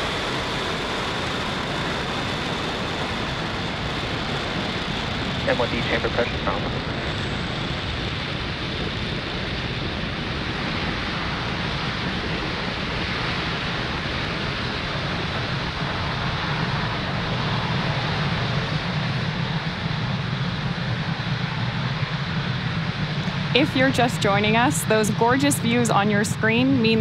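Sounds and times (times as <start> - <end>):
rocket engines roaring: 0.0 - 27.0.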